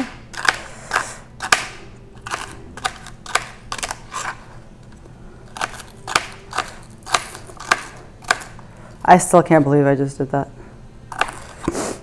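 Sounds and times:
knife slicing celery: 0:00.0 - 0:04.4, 0:05.5 - 0:08.6, 0:11.1 - 0:12.0.

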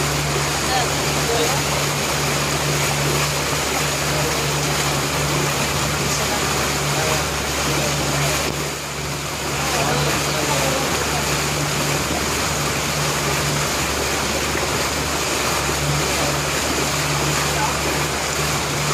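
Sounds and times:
boat engine humming: 0:00.0 - 0:18.9
water rushing: 0:00.0 - 0:18.9.

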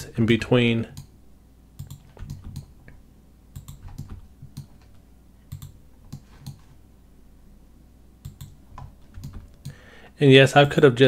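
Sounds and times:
faint low hum: 0:00.0 - 0:11.0
computer mouse clicking: 0:01.8 - 0:06.7, 0:08.2 - 0:09.8.

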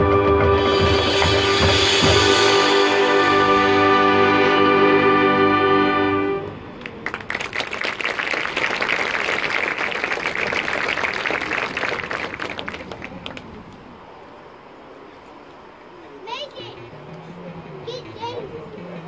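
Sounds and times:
marching band chord: 0:00.0 - 0:06.8
audience applauding: 0:06.8 - 0:13.6.

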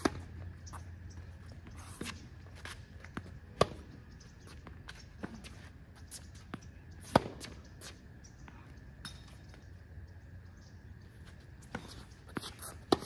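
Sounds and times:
racket hitting tennis ball: 0:00.0 - 0:00.4, 0:03.6 - 0:03.9, 0:07.0 - 0:07.6, 0:11.7 - 0:13.0
tennis ball bouncing: 0:00.0 - 0:00.9, 0:01.8 - 0:04.0, 0:06.5 - 0:07.6, 0:11.7 - 0:13.0.

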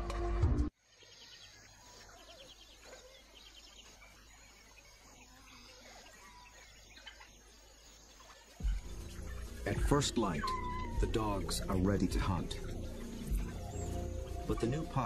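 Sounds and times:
music: 0:00.0 - 0:00.7, 0:08.6 - 0:15.0
bird calls: 0:00.8 - 0:15.0
chirping insects: 0:00.8 - 0:15.0.

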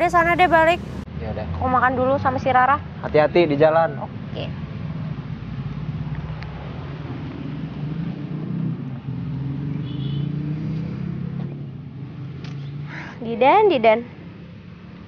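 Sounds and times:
vehicle engine humming: 0:00.0 - 0:01.1.

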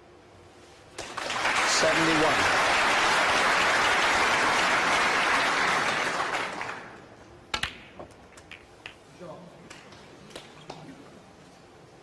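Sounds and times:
audience applause: 0:01.0 - 0:07.1
snooker balls clicking: 0:07.5 - 0:09.1.

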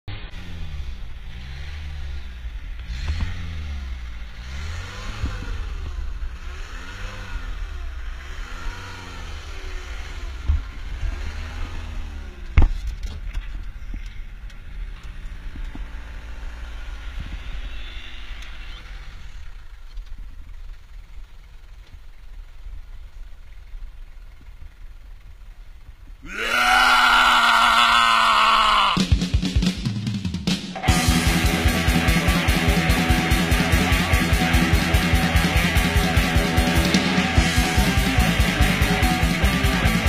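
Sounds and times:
vehicle engine revving: 0:00.1 - 0:13.0, 0:14.5 - 0:20.1, 0:30.6 - 0:40.0.

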